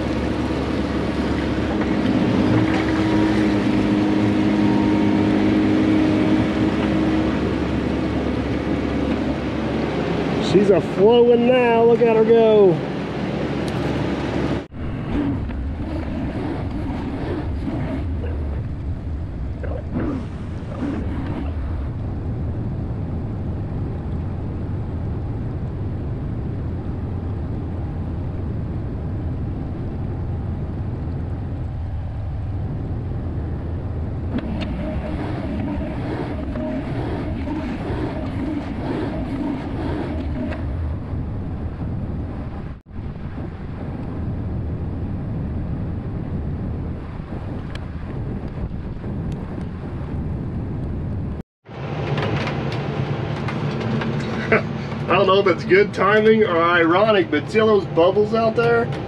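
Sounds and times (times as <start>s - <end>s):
excavator diesel engine rumbling: 51.8s - 58.0s.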